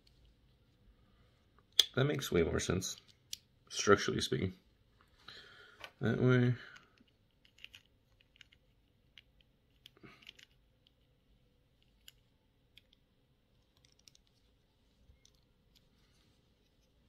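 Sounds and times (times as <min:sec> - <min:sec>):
plastic bricks clicking together: 0:06.8 - 0:10.6, 0:13.6 - 0:14.4.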